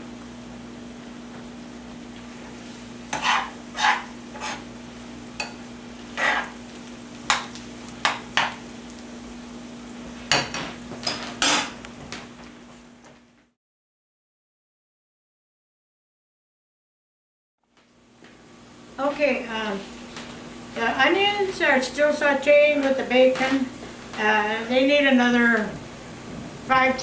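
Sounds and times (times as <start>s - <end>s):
food sizzling: 0.1s - 12.4s
metal spoon scraping pan: 3.1s - 4.7s, 6.2s - 6.6s
steady low hum: 18.0s - 27.0s.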